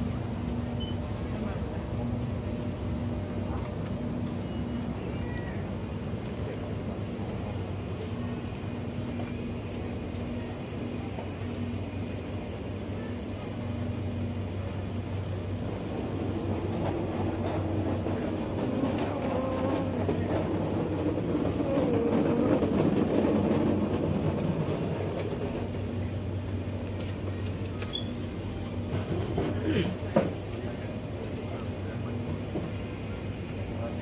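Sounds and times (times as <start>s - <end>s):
indistinct murmur: 15.7s - 26.7s.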